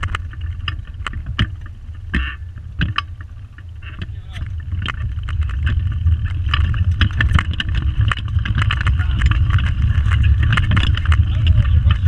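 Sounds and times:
wheels rumbling on track: 0.0s - 12.0s
frame rattling and clicking: 4.0s - 12.0s.

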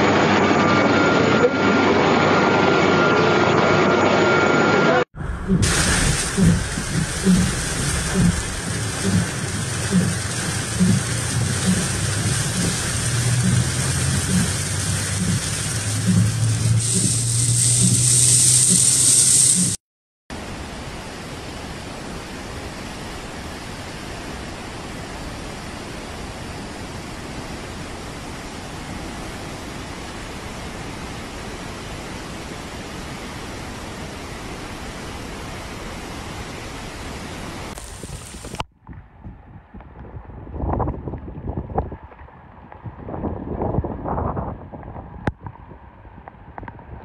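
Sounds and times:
heavy rain: 4.2s - 38.7s
vehicle engine humming: 5.2s - 19.8s
wind and rain: 5.2s - 47.0s
steady hiss of noise: 5.6s - 19.8s.

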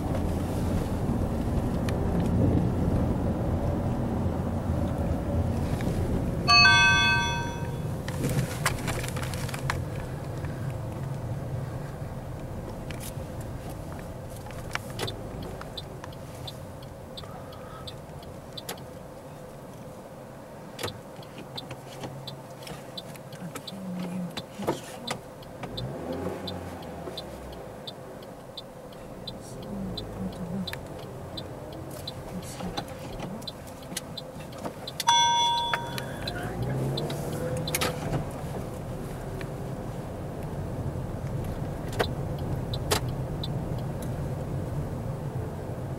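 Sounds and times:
car engine and road rumble: 0.0s - 45.9s
ringing tone: 6.5s - 8.0s, 35.1s - 36.4s
light ticking: 12.3s - 19.9s, 20.8s - 38.0s, 41.2s - 44.8s.

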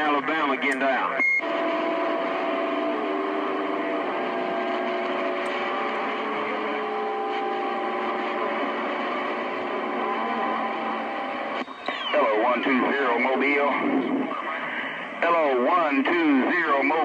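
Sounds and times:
radio static hiss: 0.0s - 17.0s
faint whistling tones: 11.6s - 12.2s.

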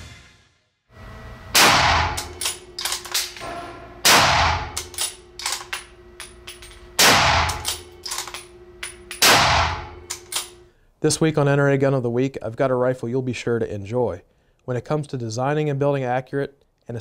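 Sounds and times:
rifle shots ringing indoors: 1.5s - 10.7s
metallic rifle bolt clicks: 2.2s - 3.5s, 4.7s - 9.3s, 10.1s - 10.6s.

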